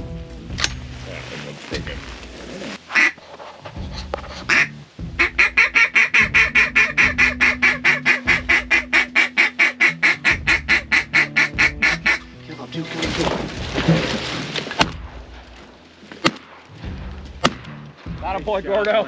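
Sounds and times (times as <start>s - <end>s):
hand-blown duck call notes: 2.9s - 3.2s, 3.8s - 12.4s.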